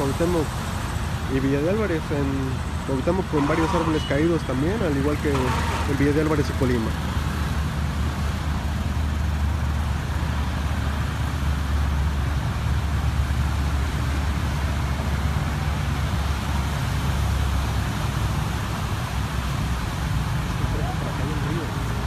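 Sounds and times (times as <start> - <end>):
traffic passing: 0.0 - 22.0.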